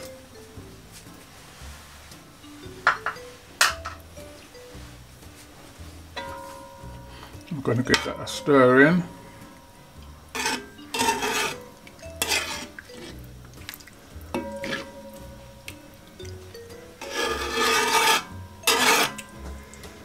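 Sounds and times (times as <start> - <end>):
light background music: 0.0 - 20.0
metal spoon scraping pot: 7.9 - 13.3, 14.3 - 20.0.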